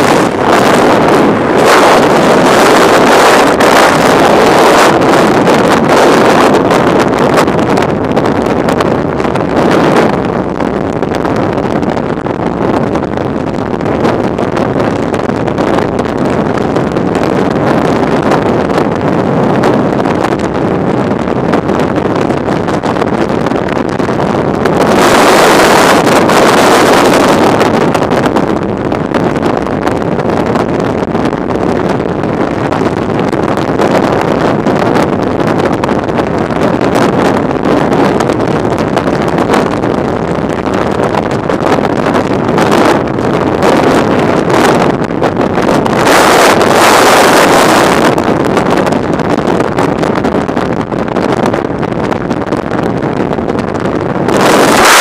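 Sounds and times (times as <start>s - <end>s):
wind roaring over microphone: 0.0s - 55.0s.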